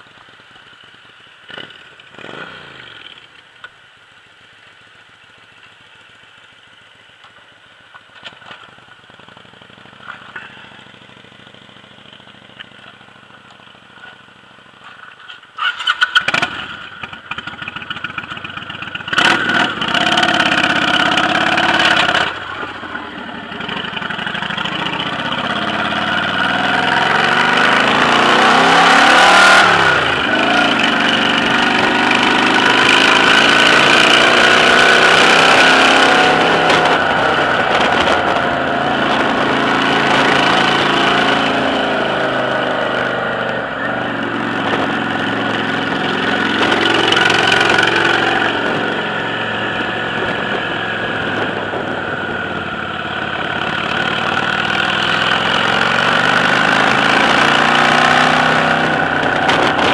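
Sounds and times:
motorcycle engine running: 0:00.0 - 0:03.7, 0:05.1 - 0:59.9
wind rushing over microphone: 0:26.2 - 0:59.9.

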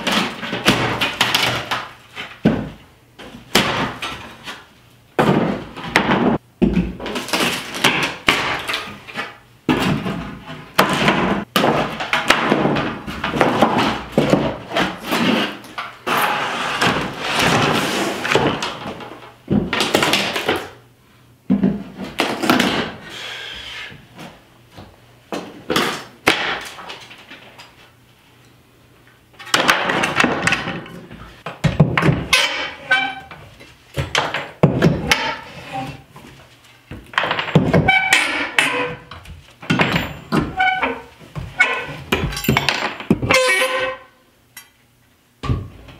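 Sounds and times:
boards clattering: 0:00.0 - 0:20.8, 0:29.4 - 0:44.0
wood cracking and knocking: 0:05.2 - 0:15.4, 0:29.4 - 0:33.1, 0:36.2 - 0:43.4
nails squealing out of wood: 0:32.3 - 0:33.4, 0:37.7 - 0:39.2, 0:40.3 - 0:42.5, 0:43.2 - 0:44.1.

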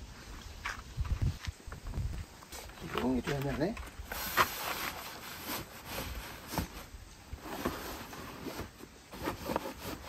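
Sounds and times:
camping gear knocking and rubbing: 0:00.6 - 0:10.0.

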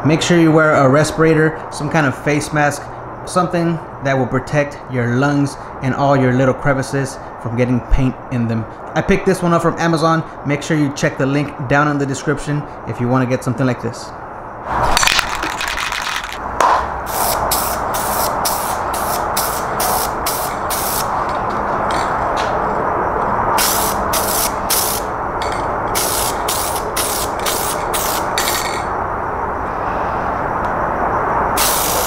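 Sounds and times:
spray paint can hissing: 0:17.1 - 0:21.1, 0:23.6 - 0:25.1, 0:25.9 - 0:28.6, 0:31.6 - 0:32.0.

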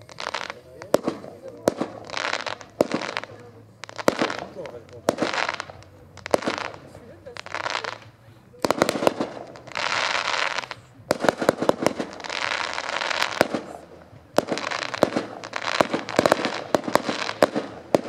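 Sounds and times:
firework shells bursting: 0:00.0 - 0:18.0
hissing crackle of fireworks: 0:00.0 - 0:18.0.

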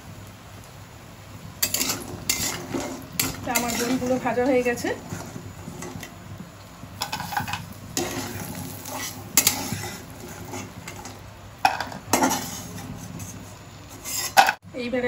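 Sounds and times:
oil sizzling: 0:00.0 - 0:14.6
metal spatula scraping metal pan: 0:01.6 - 0:06.1, 0:07.0 - 0:14.6.

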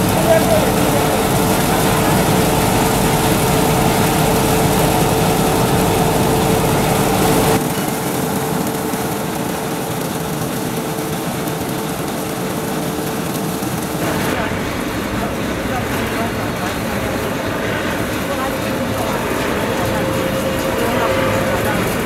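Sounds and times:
machine humming: 0:00.0 - 0:22.0.

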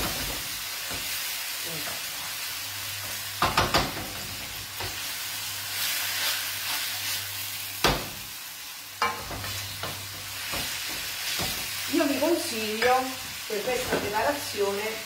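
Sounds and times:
pasta sizzling in a frying pan: 0:00.0 - 0:15.0.

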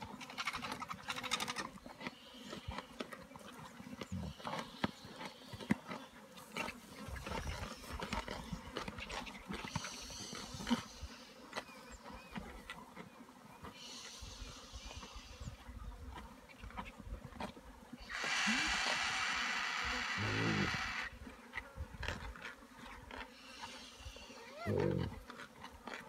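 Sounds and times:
animals crunching while feeding: 0:00.0 - 0:26.0
flies buzzing: 0:18.0 - 0:21.8.

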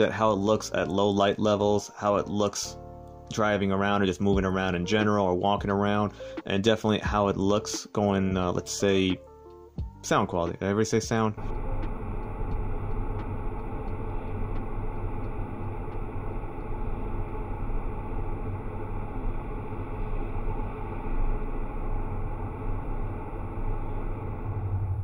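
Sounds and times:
road and engine rumble: 0:11.4 - 0:25.0.

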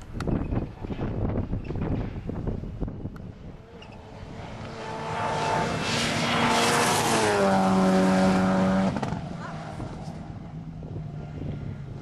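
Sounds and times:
wind on microphone: 0:00.0 - 0:04.6, 0:06.8 - 0:12.0
rally car engine at full speed: 0:00.0 - 0:12.0.

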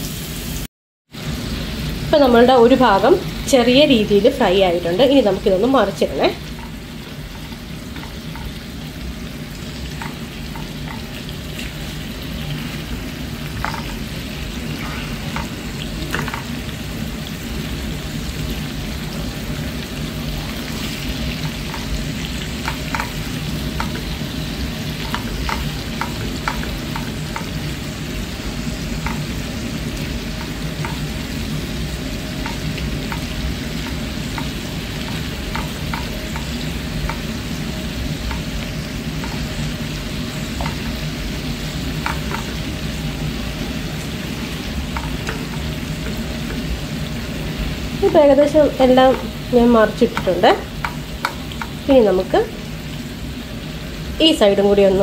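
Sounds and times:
prawns sizzling in oil: 0:00.0 - 0:55.0
spatula tapping and scraping pan: 0:06.4 - 0:08.8, 0:09.8 - 0:12.8, 0:13.4 - 0:14.2, 0:14.8 - 0:16.7, 0:20.6 - 0:27.8, 0:29.0 - 0:29.4, 0:30.4 - 0:31.3, 0:32.4 - 0:37.4, 0:38.0 - 0:39.7, 0:40.4 - 0:41.1, 0:41.8 - 0:42.8, 0:44.4 - 0:46.8, 0:48.9 - 0:51.8.

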